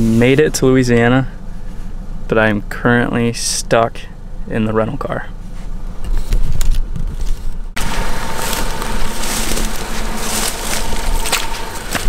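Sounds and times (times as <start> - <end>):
engine hum: 0.0 - 12.0
heavy low rumble: 0.0 - 12.0
crunching and crackling: 6.2 - 12.0.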